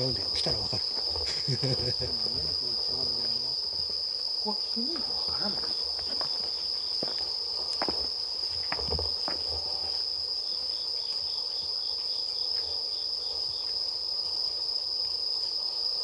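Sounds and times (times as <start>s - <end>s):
night insects chirring: 0.0s - 16.0s
pulsing insect: 0.0s - 16.0s
footsteps on paving: 5.5s - 9.5s.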